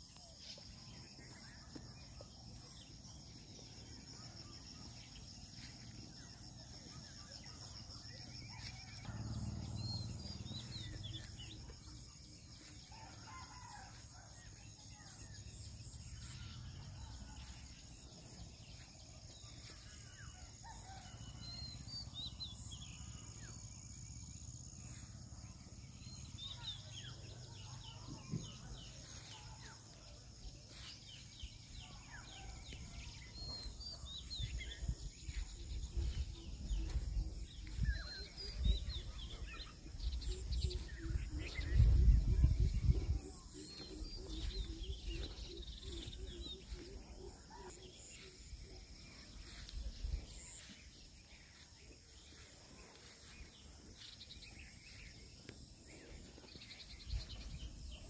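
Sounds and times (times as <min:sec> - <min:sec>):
birds chirping: 0:31.2 - 0:58.0
low rumbling on microphone: 0:34.4 - 0:46.3.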